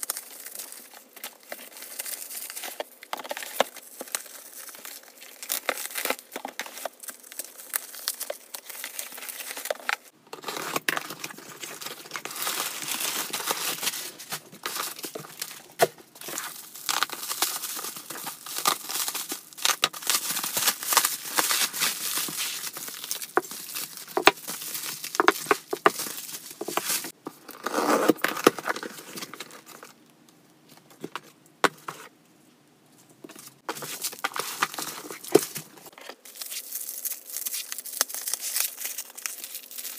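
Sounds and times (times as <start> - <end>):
bubble wrap crinkling and tearing: 0.0 - 29.9, 33.6 - 39.9.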